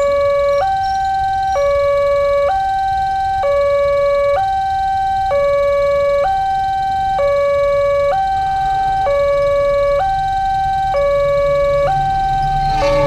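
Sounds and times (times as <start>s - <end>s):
two-tone crossing alarm: 0.0s - 13.0s.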